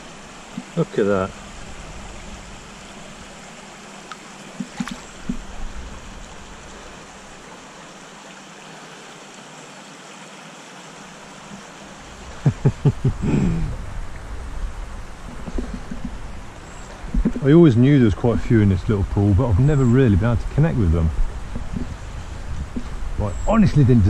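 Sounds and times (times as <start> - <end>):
stream trickling: 0.0 - 24.0
faint taps: 15.2 - 16.2.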